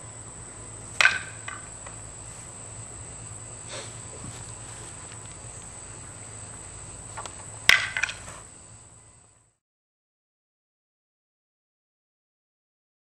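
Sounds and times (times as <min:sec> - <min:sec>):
insect chirring: 0:00.0 - 0:09.5.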